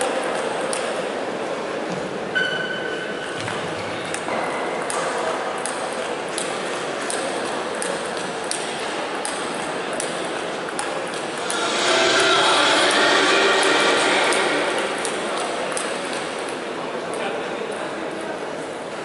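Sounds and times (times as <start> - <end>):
hall noise: 11.2 - 16.5.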